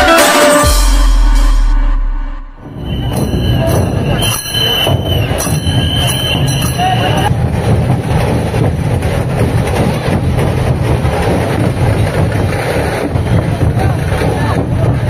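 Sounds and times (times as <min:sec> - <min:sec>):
shrill high held note: 0:00.0 - 0:07.3
clashing cymbals: 0:00.0 - 0:08.7
rhythmic drumming: 0:00.0 - 0:15.0
crowd noise: 0:02.5 - 0:15.0.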